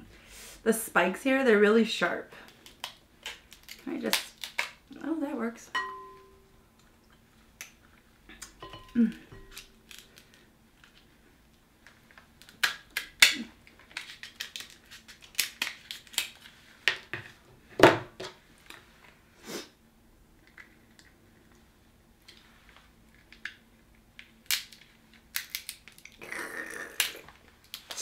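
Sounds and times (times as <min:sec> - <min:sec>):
shears cracking crab shell: 0:02.5 - 0:04.9, 0:09.4 - 0:10.4, 0:12.2 - 0:16.5, 0:24.2 - 0:26.2, 0:26.9 - 0:28.0.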